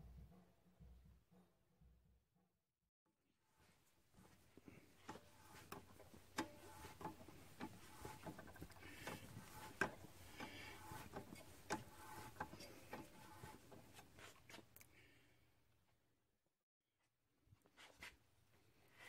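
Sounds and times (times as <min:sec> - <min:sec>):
metal scraping: 0:05.1 - 0:14.6.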